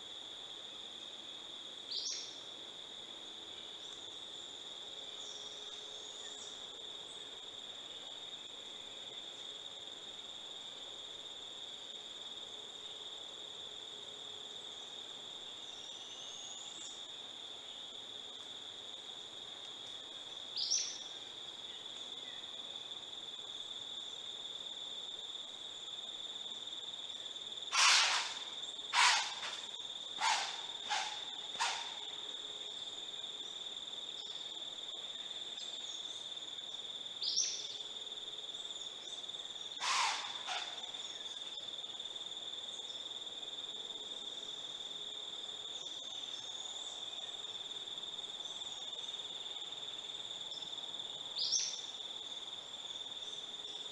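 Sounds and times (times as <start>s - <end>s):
high insect trill: 0.0s - 53.9s
owl raspy begging screeches: 27.7s - 32.1s, 39.8s - 41.0s.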